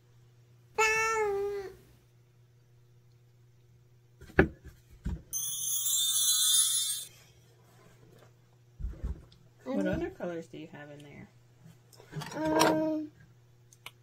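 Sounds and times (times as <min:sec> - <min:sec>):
shimmering bell-like chime: 0:05.3 - 0:07.4.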